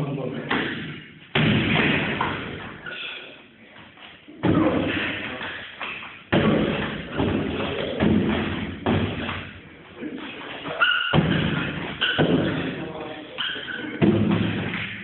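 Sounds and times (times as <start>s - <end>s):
heavy echoing thuds: 0.4s - 2.8s, 4.3s - 9.8s, 11.1s - 13.0s, 14.0s - 15.0s.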